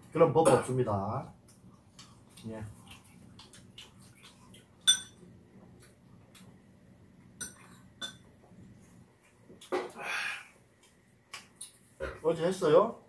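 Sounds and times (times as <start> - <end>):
utensils clinking against dishes: 4.8 - 5.2.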